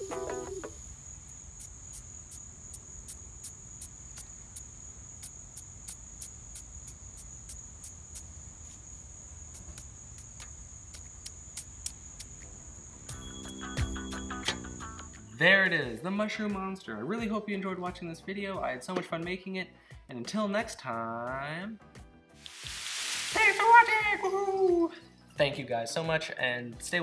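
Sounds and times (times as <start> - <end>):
insect chirps: 0.0 - 15.5, 22.5 - 25.4
insects trilling: 0.0 - 15.5, 22.6 - 25.2.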